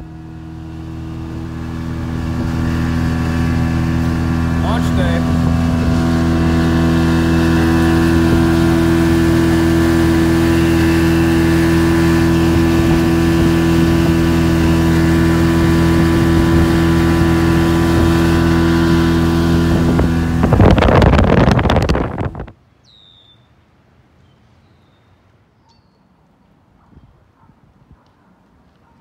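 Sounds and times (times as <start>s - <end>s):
outboard motor running: 0.0s - 22.5s
rough rushing noise: 1.2s - 22.6s.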